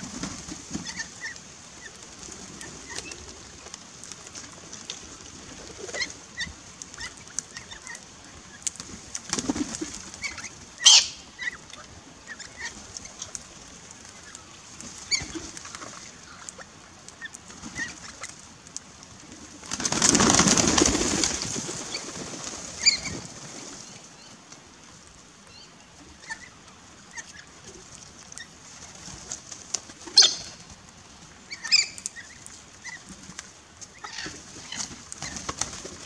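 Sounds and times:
many wings flapping: 0.0 - 10.8, 17.4 - 24.2, 28.7 - 30.9, 32.4 - 36.0
sharp parrot calls: 10.8 - 11.5, 30.2 - 30.6.

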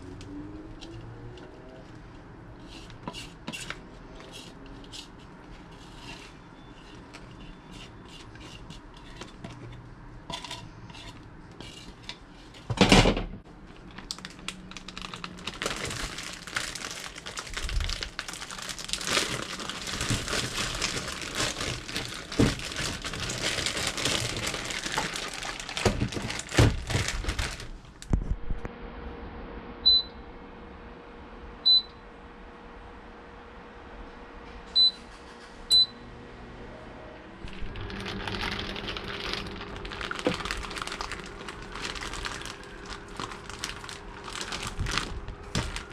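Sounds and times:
plastic bag crinkling: 13.7 - 28.0, 37.4 - 45.9
control panel beeps: 29.8 - 30.2, 31.6 - 32.0, 34.8 - 35.0, 35.7 - 36.0.

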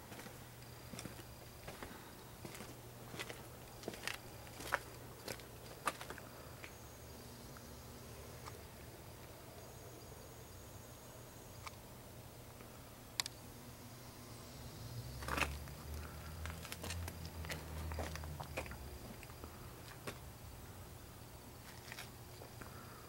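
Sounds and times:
sharp clicks: 13.2 - 13.4.

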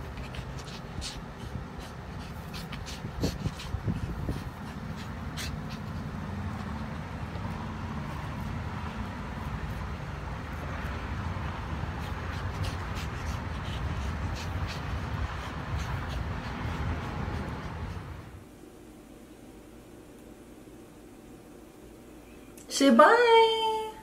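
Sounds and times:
dogs rubbing on dry grass: 0.0 - 18.4
low outdoor rumble: 0.0 - 24.0.

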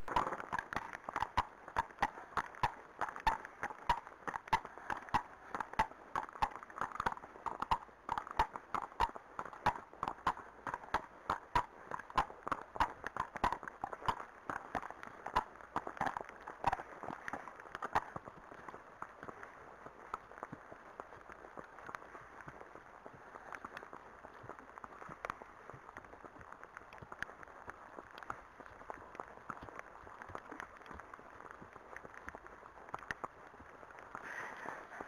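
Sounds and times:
horse hooves clopping on tarmac: 0.0 - 35.0
background hiss: 16.6 - 35.0.

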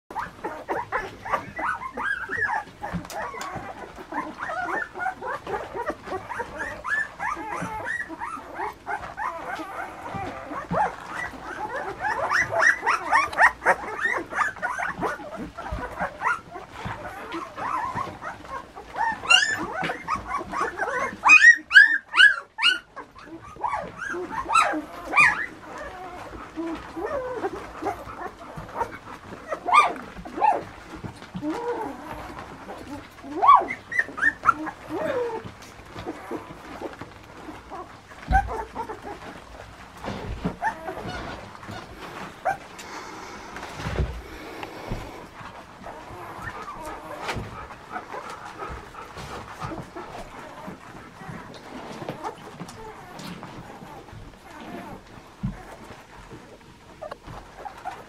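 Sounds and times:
shrill puppy yelps: 0.1 - 37.0, 37.7 - 39.3
puppies squeaking and whining: 0.1 - 58.0.

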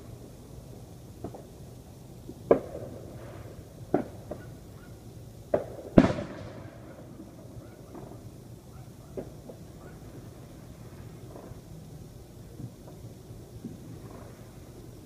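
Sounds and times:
distant fireworks bangs: 1.2 - 1.6, 2.3 - 4.9, 5.5 - 11.7.

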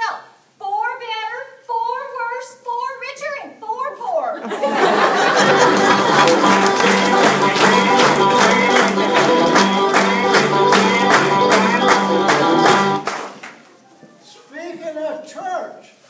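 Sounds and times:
music with steady beat: 5.3 - 13.1.

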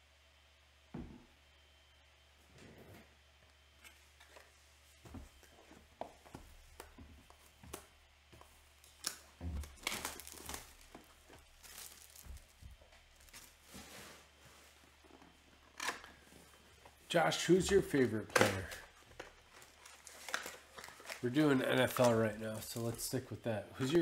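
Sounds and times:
wrappers tearing and crinkling: 8.8 - 14.4, 18.0 - 23.2.

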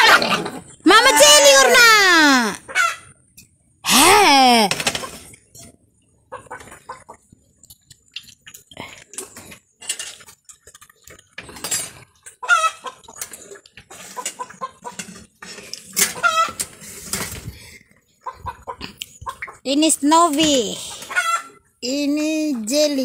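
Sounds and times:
chicken clucking: 6.1 - 7.6, 12.2 - 15.4, 16.0 - 16.8, 18.1 - 19.6, 20.9 - 21.7.

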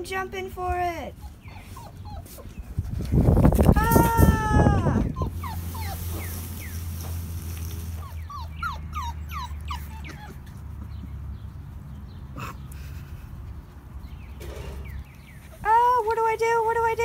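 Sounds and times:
puppy whimpering: 1.1 - 2.8, 4.5 - 6.4, 8.0 - 10.8.

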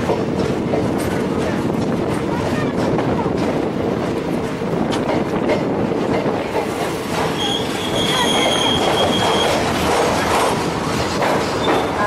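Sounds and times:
train wheels rumbling on rail: 0.0 - 12.0
high brake squeal: 7.3 - 9.6.

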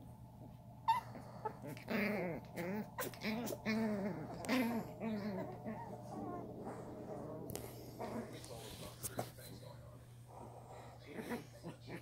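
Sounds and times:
puppies growling and yipping: 0.9 - 8.5.

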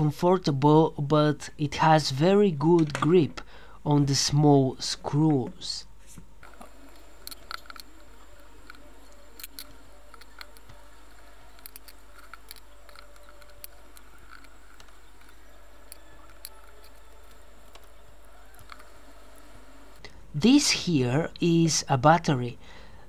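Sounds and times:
precision screwdriver clicks and scrapes: 8.6 - 17.9.

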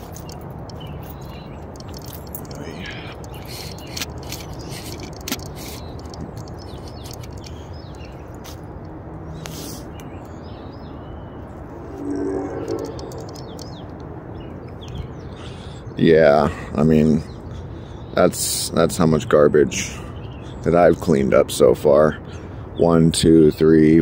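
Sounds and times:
small birds chirping: 0.0 - 24.0
low hum: 11.5 - 14.2
low rumble: 11.7 - 13.9.

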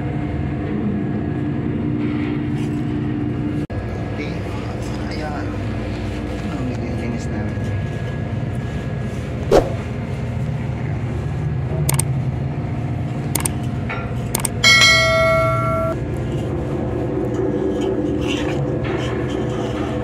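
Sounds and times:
low hum: 9.1 - 10.4, 14.2 - 17.9
notification bell chime: 14.7 - 16.0.

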